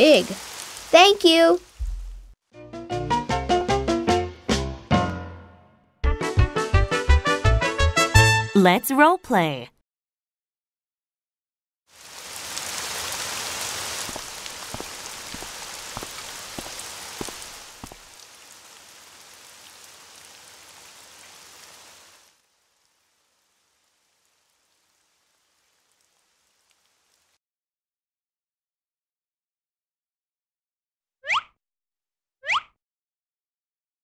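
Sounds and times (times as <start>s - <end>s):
steady rain falling: 0.0s - 2.4s, 11.9s - 27.4s.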